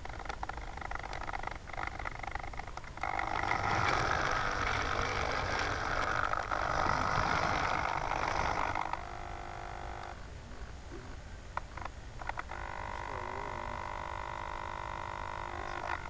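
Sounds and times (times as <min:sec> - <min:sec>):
motorized turntable whirring: 0:00.0 - 0:16.0.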